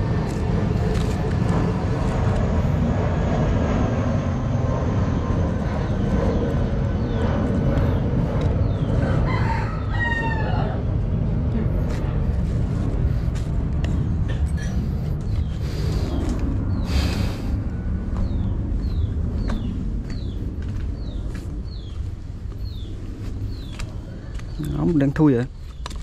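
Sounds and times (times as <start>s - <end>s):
steady low rumble: 0.0s - 26.0s
rooster crowing: 9.0s - 10.9s.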